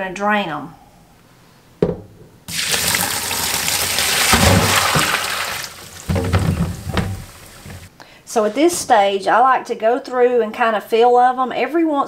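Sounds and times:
water splashing into sink: 2.5 - 7.9
cucumbers knocking into colander: 2.8 - 7.9.

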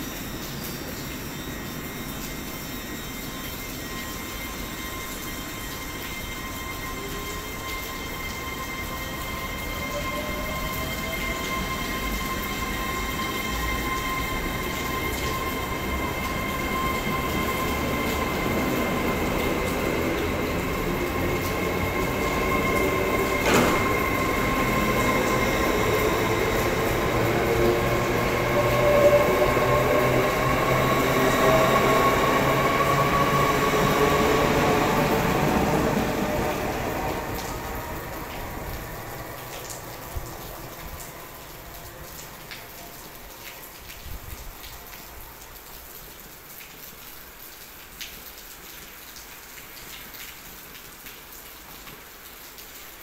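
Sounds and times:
electric train motors whining: 0.0 - 42.0
train wheels rumbling: 5.2 - 42.8.

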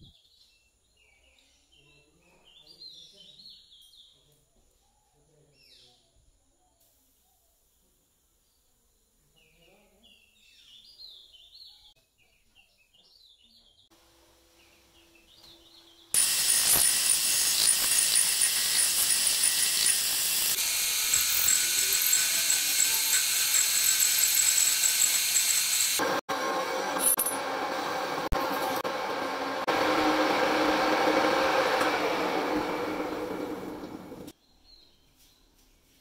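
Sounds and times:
faint bird chirps: 0.0 - 13.9
metal lathe cutting: 16.2 - 34.3.

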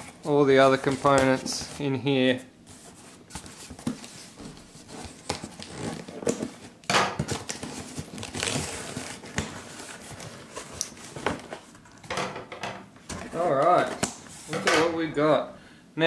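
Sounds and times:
cardboard and tape scraping: 2.7 - 11.8.

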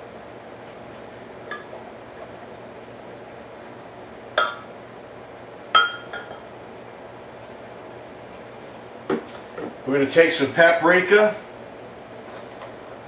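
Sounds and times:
glass cup clinking against blender jar: 5.8 - 6.4.

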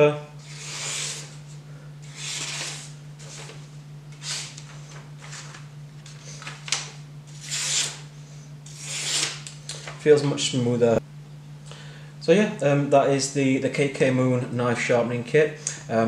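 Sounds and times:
knife slicing paper: 0.5 - 1.4, 2.1 - 3.6, 7.4 - 8.0, 8.7 - 9.5.

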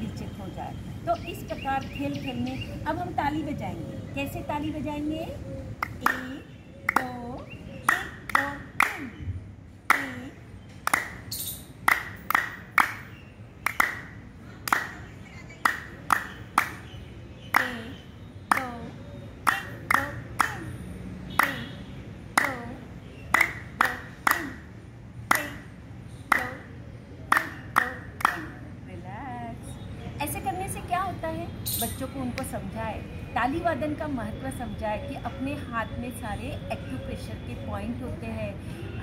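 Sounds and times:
hands clapping: 5.8 - 7.2, 7.9 - 9.1, 10.8 - 15.0, 15.6 - 16.8, 17.5 - 17.8, 18.5 - 18.8, 19.4 - 20.6, 21.4 - 21.6, 22.4 - 22.7, 23.3 - 24.6, 25.3 - 25.6, 26.3 - 26.6, 27.3 - 28.5.

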